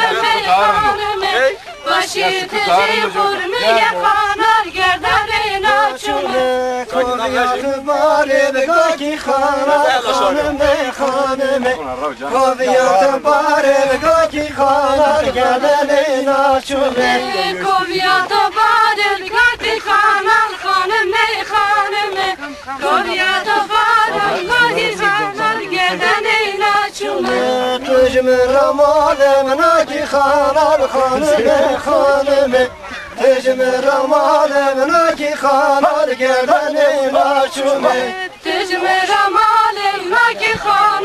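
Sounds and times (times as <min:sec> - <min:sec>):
group singing in unison: 0:00.0 - 0:41.0.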